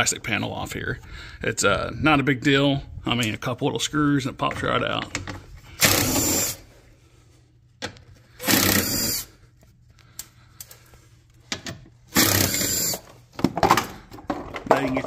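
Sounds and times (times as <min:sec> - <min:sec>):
cordless drill bursts: 0:05.8 - 0:06.7, 0:08.4 - 0:09.3, 0:12.1 - 0:13.1.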